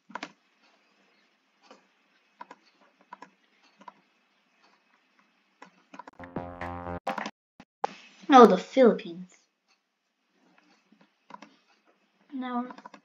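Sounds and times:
mouse and keyboard clicks: 0.1 - 0.4, 2.4 - 4.0, 11.3 - 11.6, 12.7 - 13.0.

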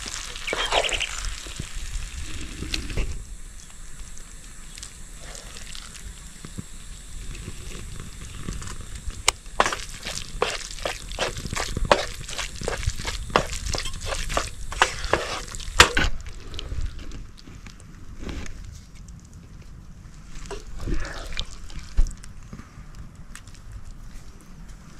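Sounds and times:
food sizzling in a frying pan: 0.0 - 2.6
wooden spatula scraping a pan: 9.6 - 16.1.

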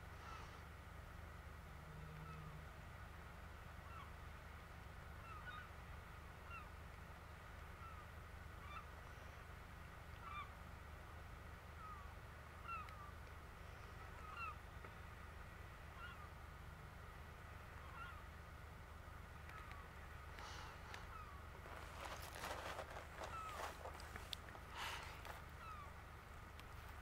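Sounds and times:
low steady rumble: 0.0 - 27.0
gulls calling: 11.8 - 16.5, 17.7 - 18.4, 19.4 - 26.1.

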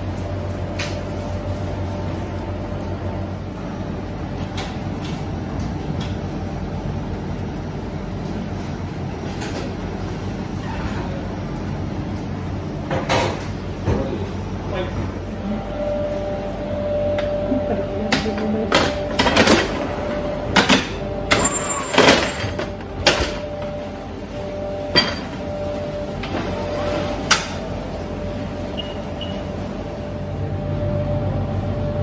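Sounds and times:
machinery hum: 0.0 - 32.0.

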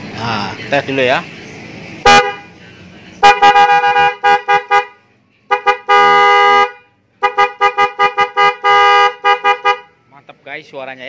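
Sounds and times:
scooter horn beeps and blasts: 2.0 - 2.6, 3.2 - 10.0.

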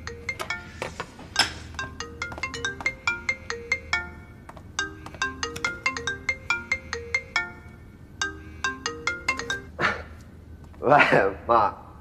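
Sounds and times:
mobile phone ringtone: 0.0 - 1.0, 1.6 - 9.8.

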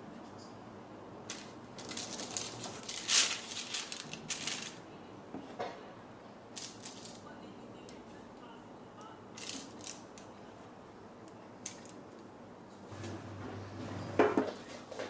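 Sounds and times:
paper rustling and crinkling: 1.3 - 4.8.

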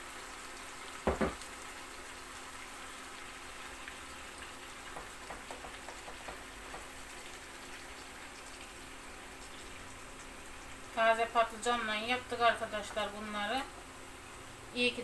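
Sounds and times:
food sizzling in a frying pan: 0.0 - 15.0
light stirring taps: 4.8 - 7.5
glass jar knocking: 5.0 - 6.9.

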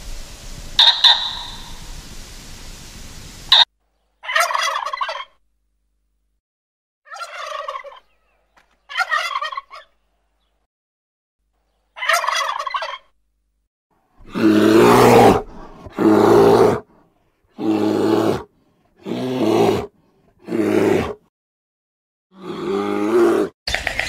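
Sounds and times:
turkey gobbling: 0.8 - 1.9, 3.5 - 5.4, 7.1 - 8.3, 8.9 - 10.0, 12.0 - 13.1
bear deep calls: 14.2 - 21.2, 22.3 - 23.5.

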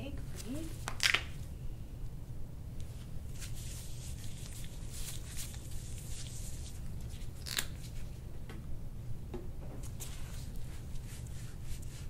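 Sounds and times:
low steady hum: 0.0 - 12.0
hands rustling over skin and clothing: 2.8 - 8.2, 9.8 - 12.0.

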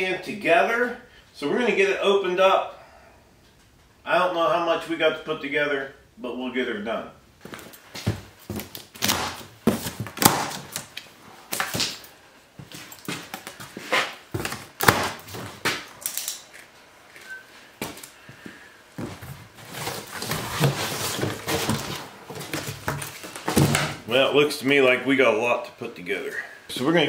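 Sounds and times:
cardboard flaps rustling: 7.4 - 12.0, 19.0 - 24.0.

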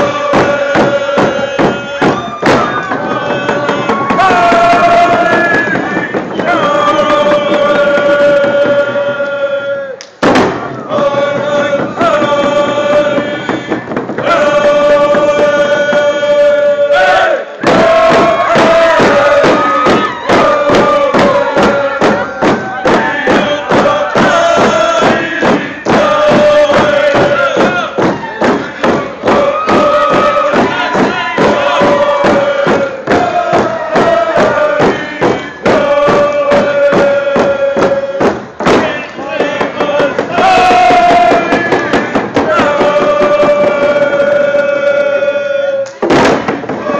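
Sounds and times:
hand drum beat: 0.0 - 9.2, 17.6 - 44.8
people chanting together: 0.0 - 46.9.

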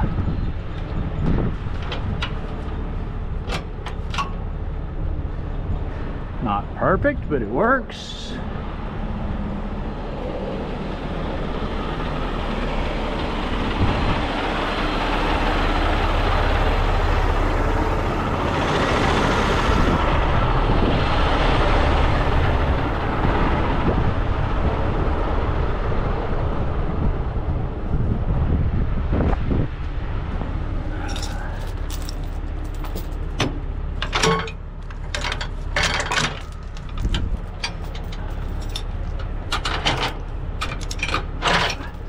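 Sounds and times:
truck engine and road rumble: 0.0 - 42.0.

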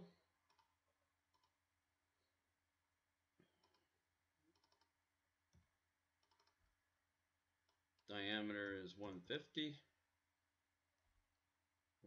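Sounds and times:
computer mouse click: 0.5 - 0.7, 1.3 - 1.6, 3.4 - 3.9, 4.5 - 5.6, 6.2 - 6.6.

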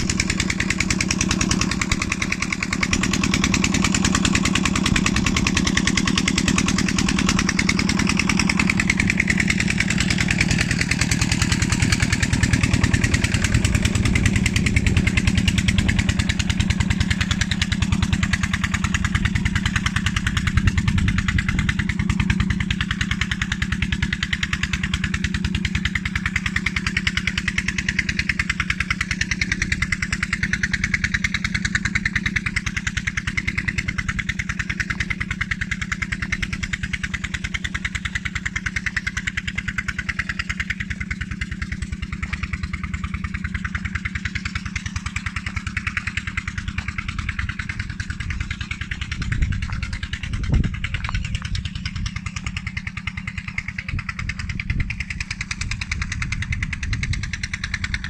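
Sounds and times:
engine running steadily: 0.0 - 58.0.

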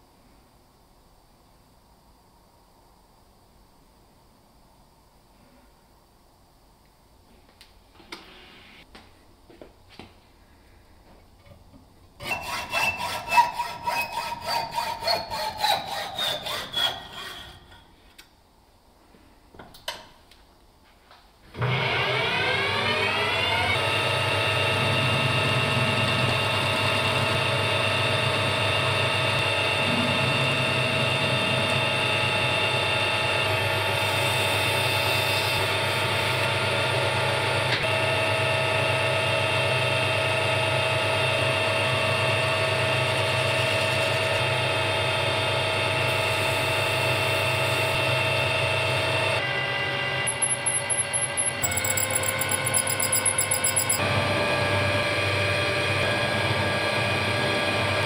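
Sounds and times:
metal lathe whining: 12.2 - 17.8, 21.6 - 36.5, 43.0 - 58.0
hacksaw cutting metal rod: 12.2 - 17.9, 50.3 - 54.0.

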